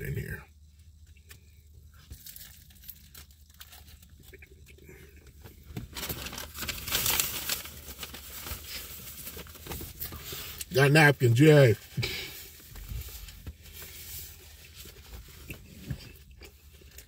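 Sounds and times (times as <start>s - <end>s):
paper wrapper crinkling: 1.8s - 4.7s, 5.4s - 15.8s.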